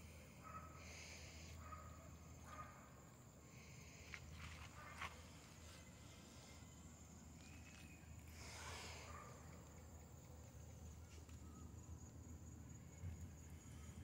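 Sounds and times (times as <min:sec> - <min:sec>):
soft rustle: 0:03.9 - 0:11.6.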